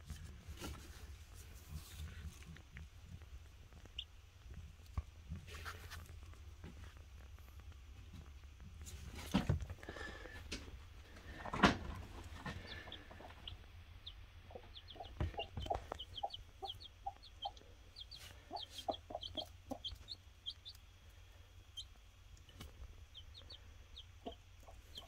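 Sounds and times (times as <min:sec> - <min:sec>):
chicks peeping: 0:01.6 - 0:25.0
hen clucking softly: 0:12.3 - 0:20.8, 0:22.6 - 0:25.0.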